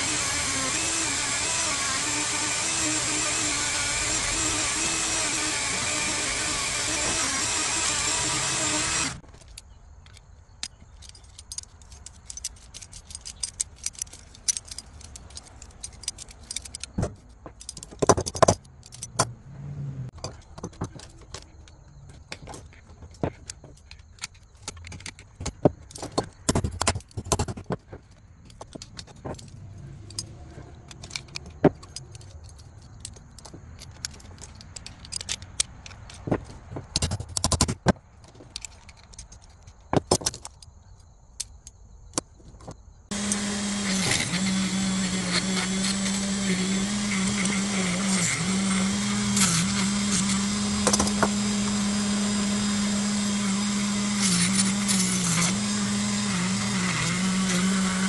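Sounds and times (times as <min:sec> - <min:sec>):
light metal clinking and rattling: 0:09.2 - 0:19.2.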